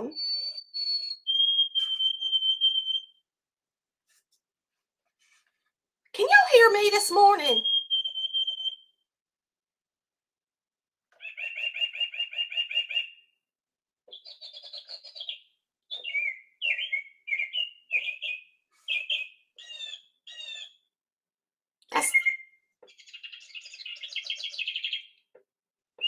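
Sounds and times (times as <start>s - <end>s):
recorded bird songs from a clock: 0.0s - 3.3s, 6.6s - 9.1s, 11.1s - 21.0s, 21.9s - 26.0s.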